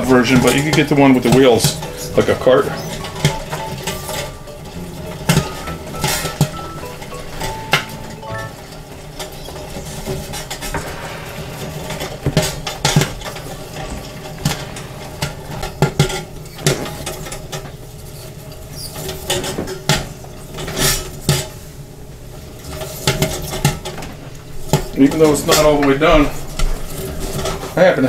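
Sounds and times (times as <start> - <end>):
popcorn machine humming: 0.0 - 9.4.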